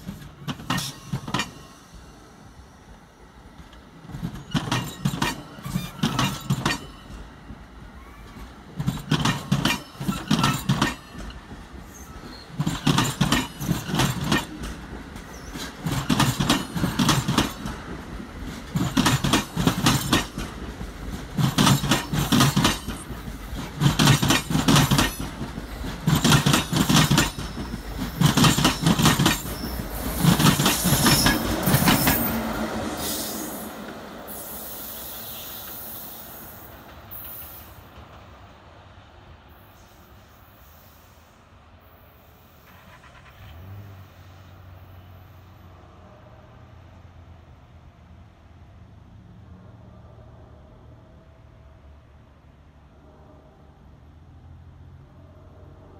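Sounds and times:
train wheels clacking: 0.0s - 2.2s, 3.7s - 35.9s
electric locomotive rumbling: 0.0s - 40.7s
train rumble: 0.0s - 55.9s.

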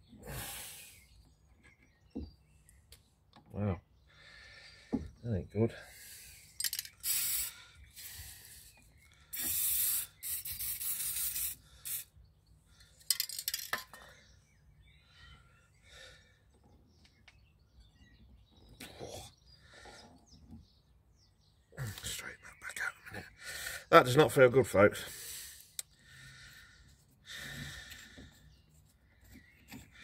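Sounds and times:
aerosol spray hissing: 7.0s - 7.5s, 9.4s - 12.1s.

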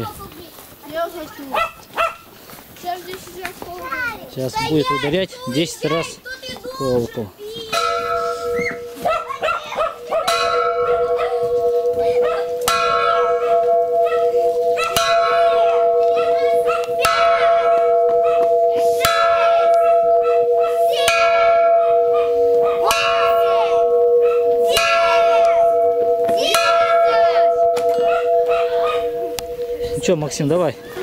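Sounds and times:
hanging bell ringing: 6.8s - 31.0s.

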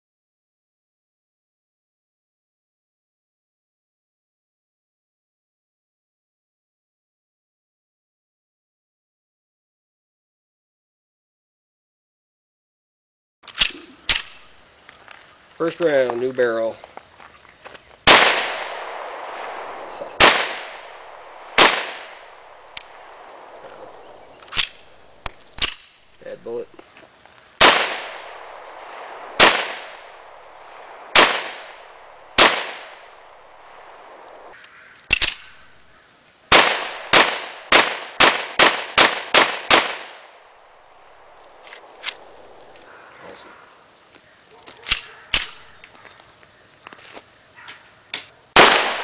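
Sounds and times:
pistol shots: 18.1s - 25.9s, 27.6s - 34.5s, 36.5s - 42.8s, 48.6s - 49.0s
gunshot echo: 18.1s - 26.6s, 27.6s - 34.5s, 36.5s - 42.9s, 48.6s - 49.0s.

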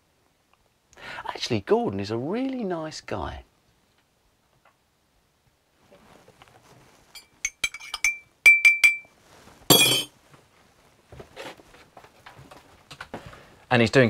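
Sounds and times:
teaspoon clinking against mug: 7.2s - 9.1s.

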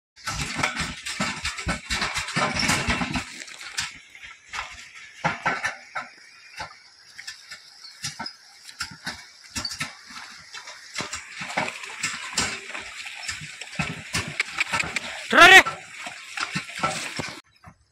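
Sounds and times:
continuous rumbling: 0.2s - 17.9s
hooves splashing in water: 0.2s - 17.9s.

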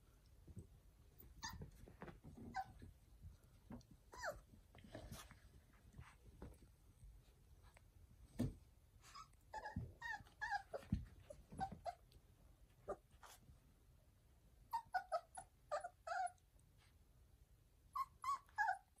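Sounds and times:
puppies yipping and whimpering: 9.1s - 12.0s, 14.8s - 16.4s, 18.0s - 19.0s.

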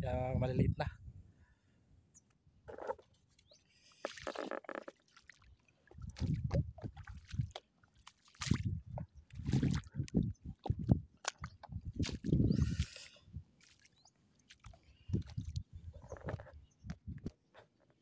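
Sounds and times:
footsteps wading through water: 3.4s - 16.6s.

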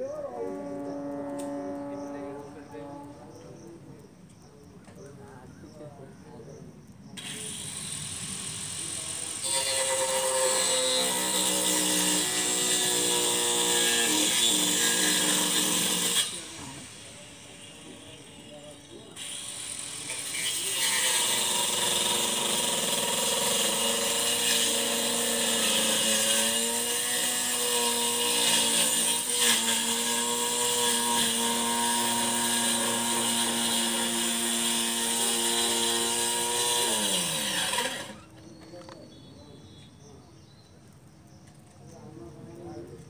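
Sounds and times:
small engine running: 7.2s - 10.2s.

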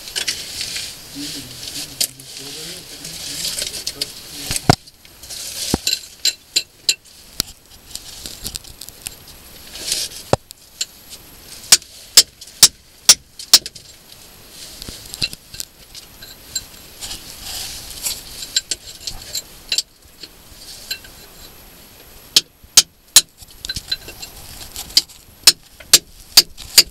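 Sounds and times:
hammer striking steel chisel on rock: 25.5s - 26.9s.

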